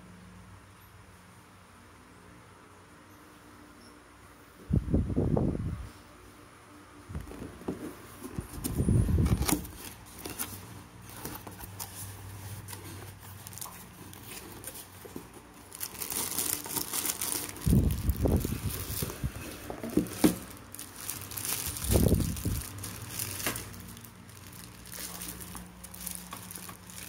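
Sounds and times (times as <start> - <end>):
hands opening cardboard box: 7.2 - 17.6, 18.8 - 21.0
cardboard scraping: 7.2 - 24.0
plastic bag crinkling: 8.7 - 27.0
cardboard box thumps: 19.6 - 20.6.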